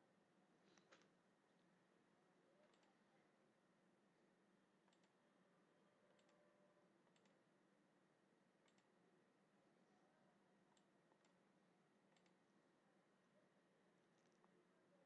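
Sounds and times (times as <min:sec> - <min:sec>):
computer mouse clicks: 0:02.6 - 0:03.0, 0:04.9 - 0:05.2, 0:06.2 - 0:06.4, 0:07.0 - 0:07.4, 0:08.6 - 0:09.0, 0:10.7 - 0:11.4, 0:12.1 - 0:12.4.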